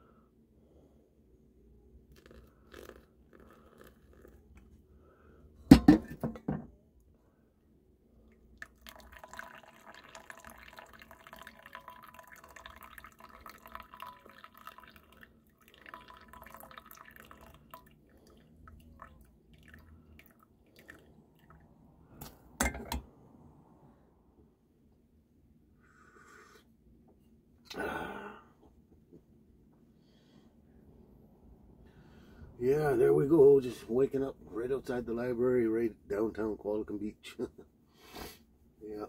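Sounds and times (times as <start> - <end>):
hot water pouring: 2.1 - 4.4, 8.5 - 21.6
coffee dripping into mug: 2.1 - 4.5, 8.3 - 21.7
cookware clattering: 5.7 - 6.7, 22.6 - 23.0.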